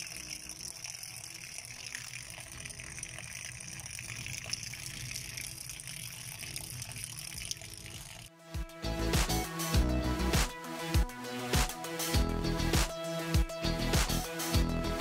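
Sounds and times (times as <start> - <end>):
water gushing onto ground: 0.0 - 8.3.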